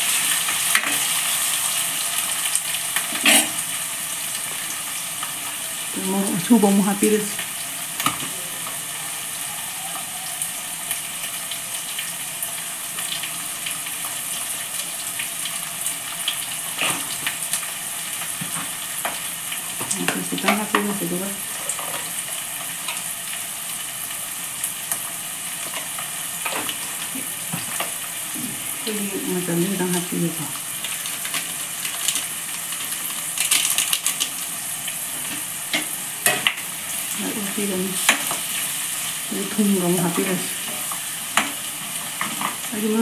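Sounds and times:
vegetables sizzling in oil: 0.0s - 43.0s
voice: 5.9s - 7.4s, 19.9s - 21.5s, 28.4s - 30.6s, 37.2s - 38.1s, 39.3s - 40.6s, 42.7s - 43.0s.

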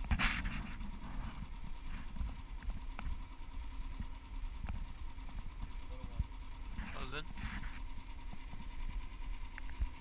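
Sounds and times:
outboard motor running: 0.0s - 10.0s.

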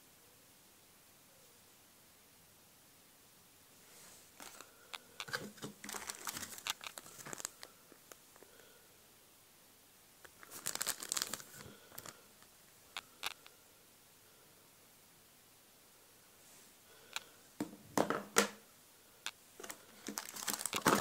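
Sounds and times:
plastic bag crinkling: 4.4s - 7.7s, 10.4s - 12.3s, 19.6s - 21.0s.

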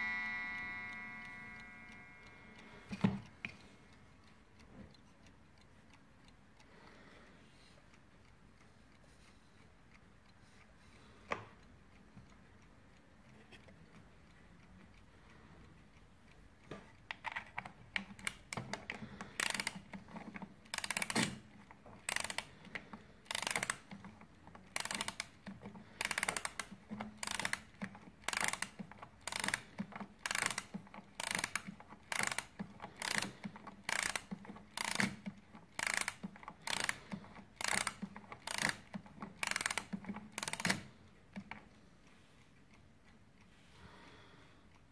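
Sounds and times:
clock winding ratchet clicking: 0.0s - 3.1s, 16.6s - 41.6s.

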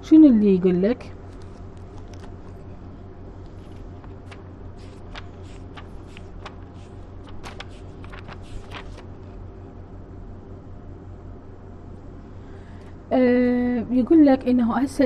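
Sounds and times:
steady low hum: 0.0s - 15.0s
paper pages rustling: 1.2s - 9.4s
light clicks of pages handled: 1.3s - 2.8s, 3.4s - 9.4s.

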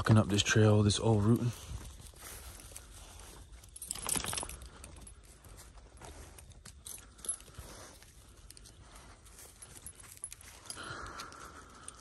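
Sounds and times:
faint footsteps on trail: 0.0s - 12.0s
metal gear jangling and clicking: 3.3s - 5.4s, 6.4s - 12.0s.

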